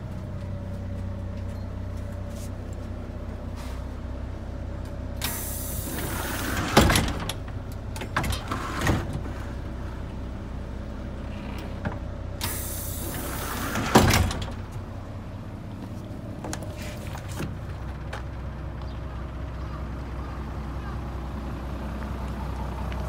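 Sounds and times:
bus engine idling: 0.0s - 23.0s
air hiss of bus door: 3.5s - 4.0s, 5.2s - 7.2s, 12.4s - 14.6s.

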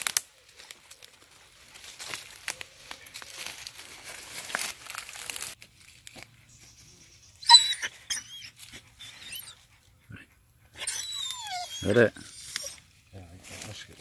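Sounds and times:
dry leaves rustling: 0.0s - 7.2s, 11.9s - 14.0s
dog whining: 7.4s - 9.7s, 10.8s - 12.8s.

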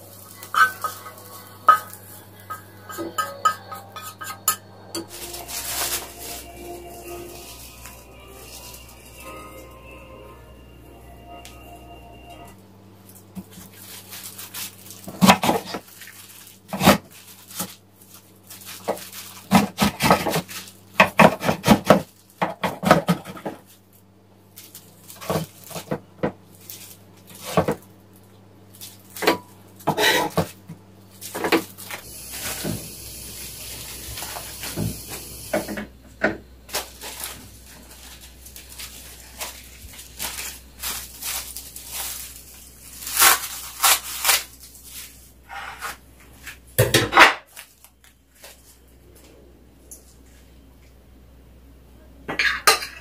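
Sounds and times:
utensils clinking on dishes: 0.0s - 10.2s, 52.3s - 53.0s
steady hiss: 4.5s - 12.5s, 31.9s - 36.0s.

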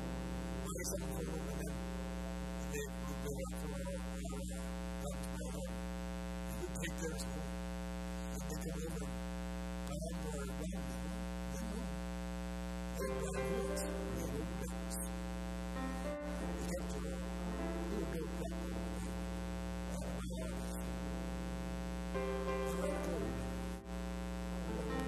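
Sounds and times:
electrical mains hum: 0.0s - 25.0s.

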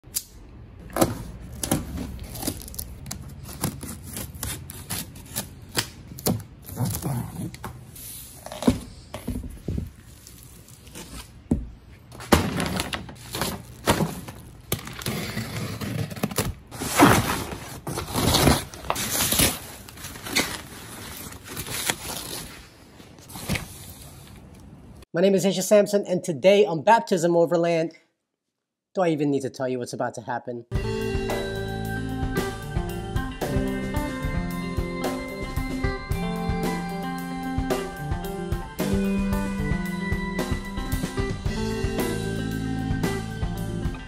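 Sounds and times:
plastic and paper crinkling: 1.0s - 5.5s, 9.6s - 11.4s, 12.1s - 24.5s.

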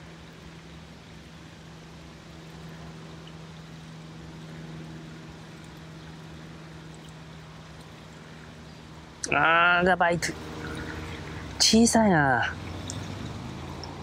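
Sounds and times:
low motor hum: 0.0s - 14.0s
outdoor background noise: 0.0s - 14.0s.

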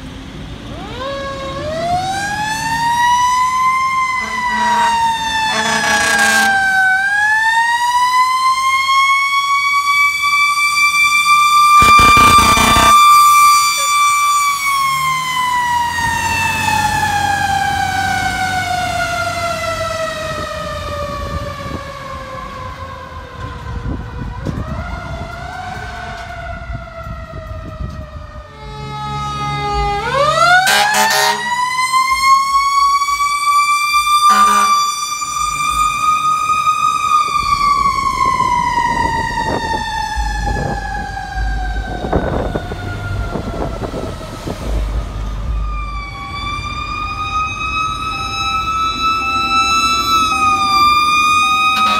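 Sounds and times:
fire truck engine rumbling: 0.0s - 51.9s
mechanical siren winding: 11.7s - 13.9s, 50.5s - 51.9s.

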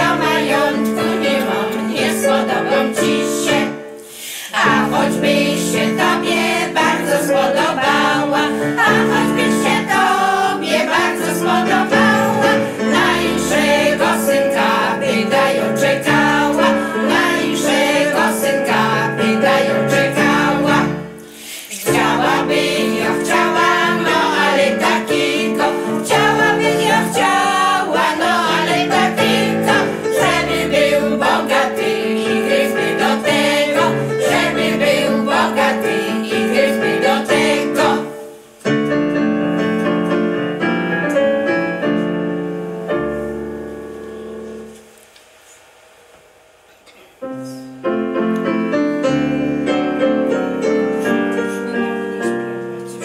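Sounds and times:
women singing folk song together: 0.0s - 38.3s
instruments holding steady notes: 0.0s - 53.0s.

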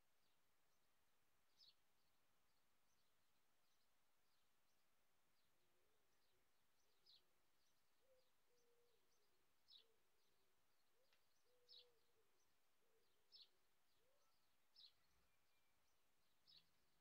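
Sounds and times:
bird chirping: 1.5s - 1.8s, 6.1s - 17.0s.

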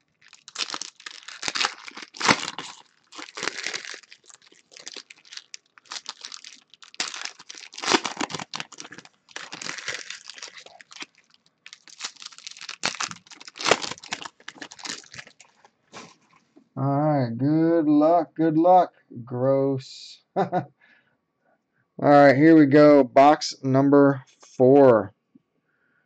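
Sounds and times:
plastic wrappers crinkling and tearing: 0.0s - 16.4s.

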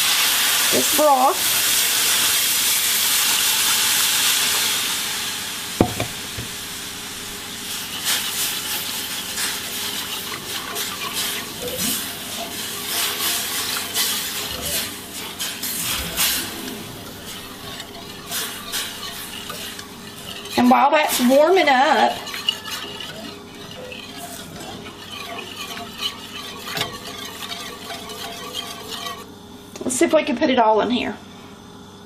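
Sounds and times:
broth sizzling in hot pan: 0.0s - 29.7s
whisk scraping a pan: 5.8s - 29.8s.

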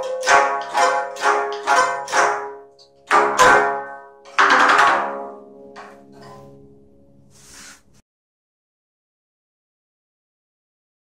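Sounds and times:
zither plucked notes: 0.0s - 7.8s
sweeping stroke across zither strings: 0.0s - 8.0s.

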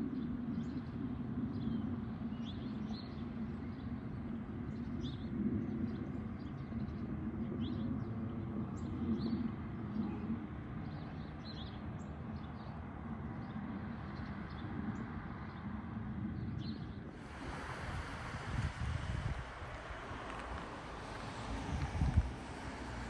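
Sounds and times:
low outdoor rumble: 0.1s - 23.0s.

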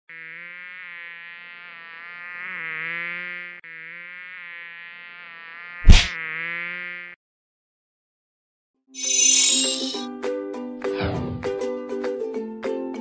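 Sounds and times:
mosquito buzzing: 0.1s - 7.2s, 9.0s - 10.1s
hand slap: 5.9s - 6.1s.

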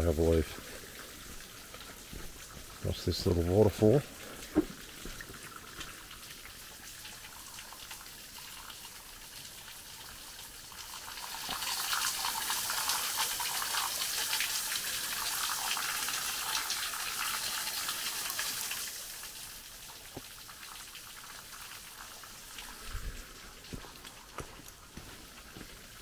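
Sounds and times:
waterfall trickling and dripping: 0.0s - 26.0s
soft thumps: 4.5s - 5.2s.

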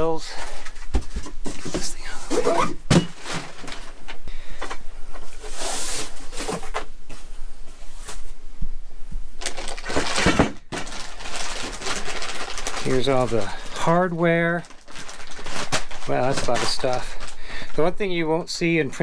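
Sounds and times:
cardboard and plastic wrap rustling: 0.0s - 8.4s, 9.4s - 18.3s
plastic bag crinkling: 9.4s - 18.2s.

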